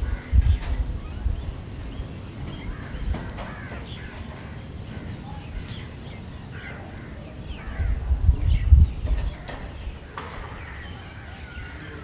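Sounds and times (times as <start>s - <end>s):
crows cawing: 0.0s - 0.5s, 2.6s - 5.9s, 6.5s - 8.0s, 10.0s - 12.0s.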